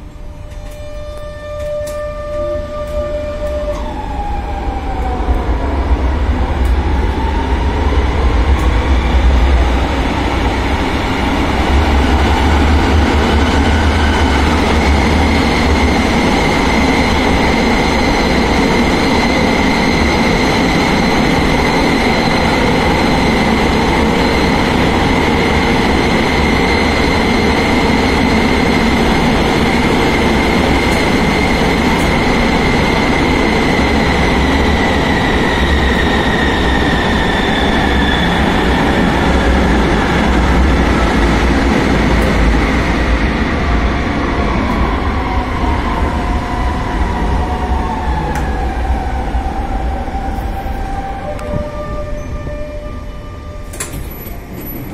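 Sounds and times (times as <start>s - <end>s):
tram electric drive whine: 0.0s - 54.9s
wheels rumbling on rails: 53.6s - 54.9s.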